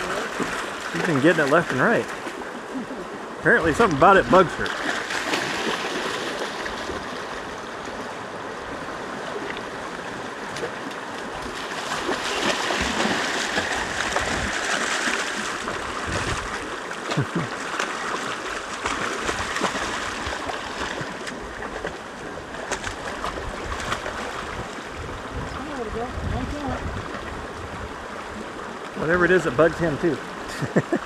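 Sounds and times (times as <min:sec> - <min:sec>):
water splashing by dog: 0:00.0 - 0:02.7, 0:03.5 - 0:08.0, 0:09.0 - 0:25.8.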